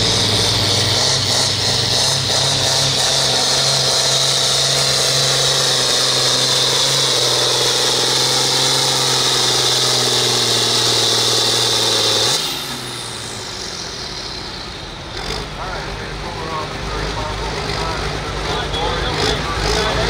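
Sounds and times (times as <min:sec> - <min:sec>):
tractor diesel engine at full throttle: 0:00.0 - 0:20.0.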